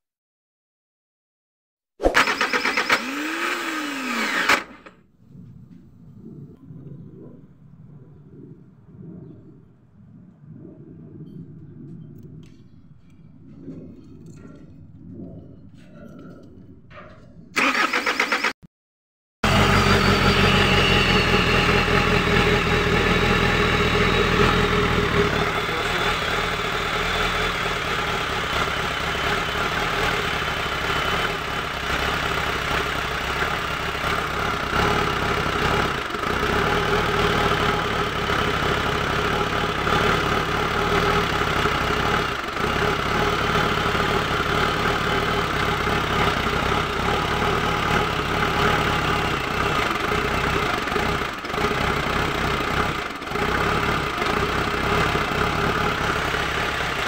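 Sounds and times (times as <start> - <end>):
diesel engine idling: 19.4 - 57.0.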